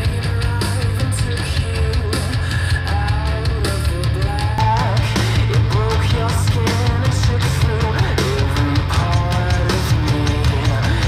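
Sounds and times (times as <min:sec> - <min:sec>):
heavy rock music over speakers: 0:00.0 - 0:11.0.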